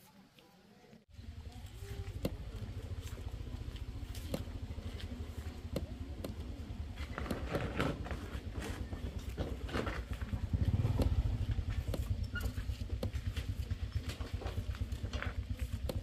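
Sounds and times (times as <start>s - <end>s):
motorbike engine idling: 1.1s - 16.0s.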